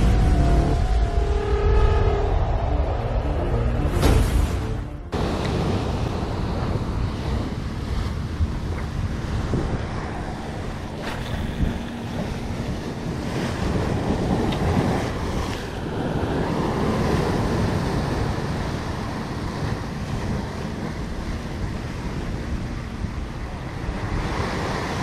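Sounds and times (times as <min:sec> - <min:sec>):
sea surf breaking on rocks: 0:05.2 - 0:25.0
wind buffeting microphone: 0:05.2 - 0:25.0.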